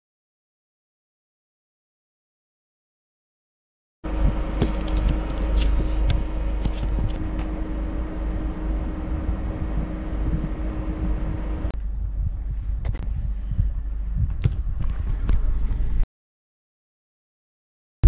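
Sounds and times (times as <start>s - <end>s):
steady hum with hiss: 4.1s - 16.0s
wind buffeting microphone: 4.1s - 16.0s.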